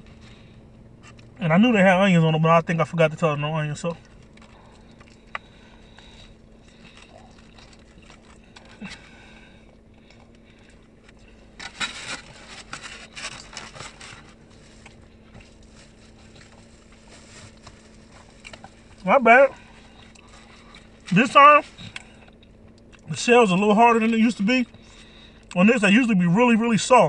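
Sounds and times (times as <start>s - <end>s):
faint steady hum: 0.0s - 27.0s
crackling from eating a taco: 4.0s - 23.1s.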